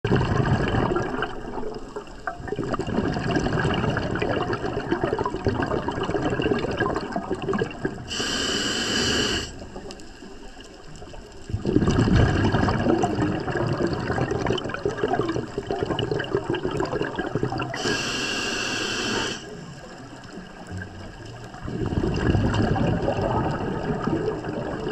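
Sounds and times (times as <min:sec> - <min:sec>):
exhaled bubbles underwater: 0:00.0 - 0:24.9
hissing inhale through regulator: 0:08.0 - 0:09.7, 0:17.7 - 0:19.6.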